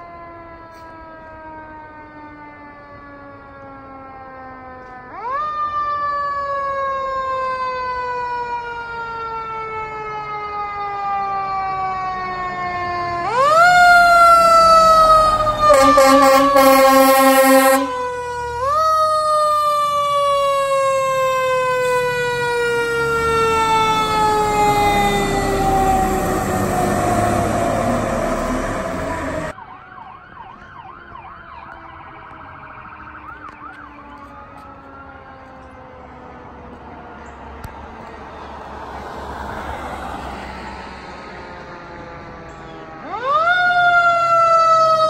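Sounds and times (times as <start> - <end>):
air horn blast: 15.5 - 18.0.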